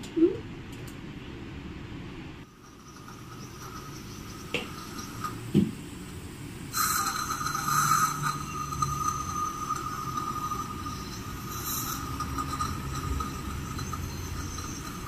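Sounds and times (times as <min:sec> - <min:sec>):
dental suction hissing and whistling: 0:02.5 - 0:05.8, 0:06.7 - 0:15.0
instruments clicking on teeth: 0:06.8 - 0:15.0.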